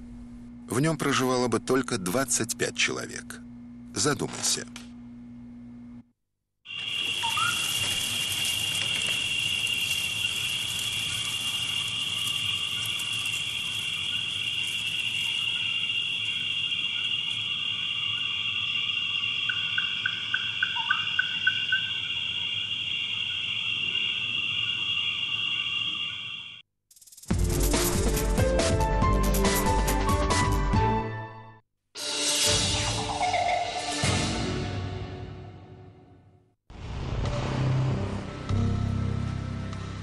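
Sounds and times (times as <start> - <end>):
brief rising calls: 6.7 - 17.4
quick chirps: 6.7 - 22.7
high insect chorus: 6.7 - 27.3.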